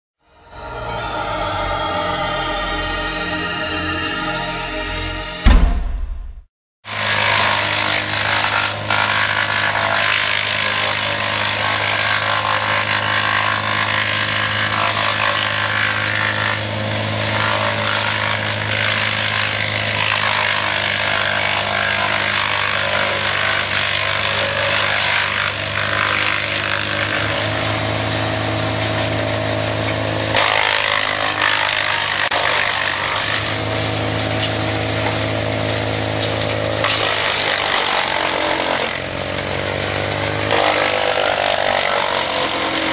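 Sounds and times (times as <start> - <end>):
brush chipper engine drone: 0.2 - 5.4, 6.9 - 42.9
wood being chipped crackling: 30.4 - 42.9.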